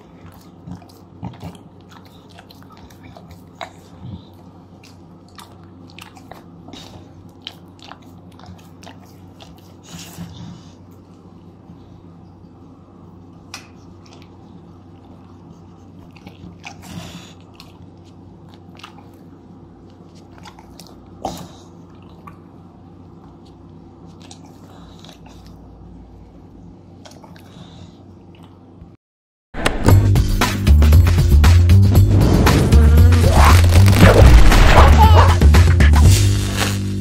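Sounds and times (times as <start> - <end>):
dog licking and smacking lips: 0.0 - 6.6, 7.2 - 9.8, 17.4 - 21.1
low hum: 31.6 - 37.0.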